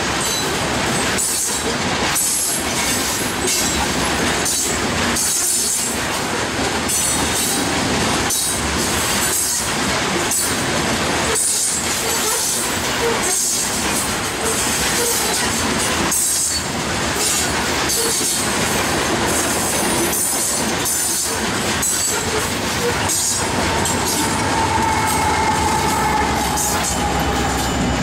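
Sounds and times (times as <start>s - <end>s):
steel train wheels rumbling on rail: 0.0s - 28.0s
wheels clacking at rail joints: 0.0s - 28.0s.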